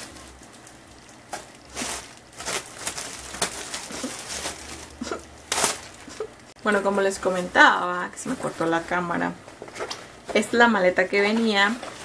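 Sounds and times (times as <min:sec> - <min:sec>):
small objects rustling and clicking: 0:00.0 - 0:06.6.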